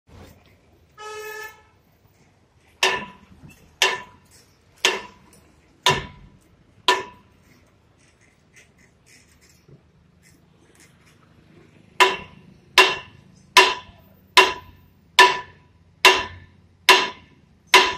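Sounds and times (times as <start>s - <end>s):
vehicle horn toot: 1.0s - 1.8s
ringing metal strikes: 2.8s - 7.3s, 12.0s - 17.9s.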